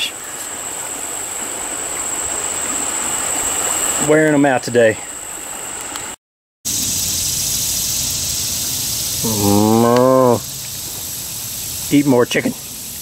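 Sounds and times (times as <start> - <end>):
steady background hiss: 0.0 - 13.0
cow mooing: 9.2 - 10.5.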